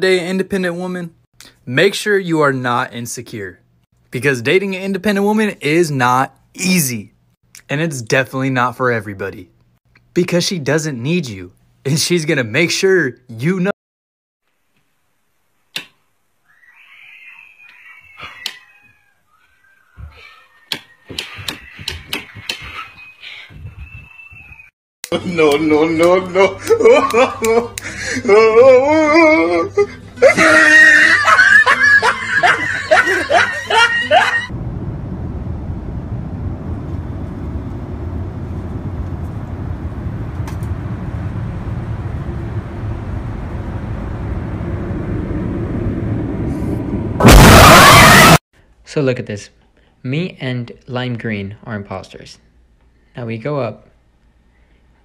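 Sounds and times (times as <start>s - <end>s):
airliner cabin rumble: 32.4s - 48.4s
loud jump-scare blast: 40.8s - 48.4s.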